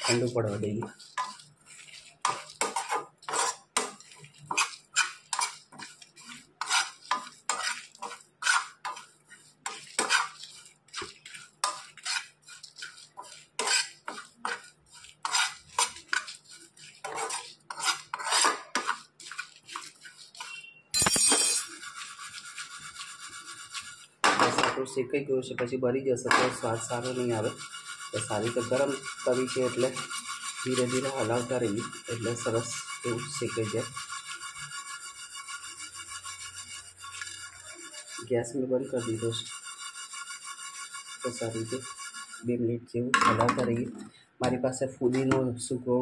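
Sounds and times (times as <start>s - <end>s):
seeds rustling against pan: 0.0s - 18.2s
spatula scraping a frying pan: 0.0s - 20.8s, 21.6s - 24.6s, 26.3s - 42.5s.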